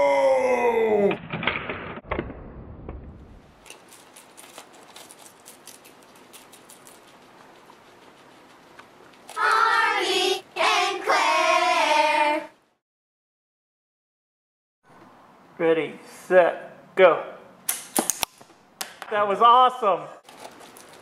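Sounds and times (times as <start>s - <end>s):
guinea pigs chewing lettuce: 3.7s - 9.4s, 20.2s - 21.0s.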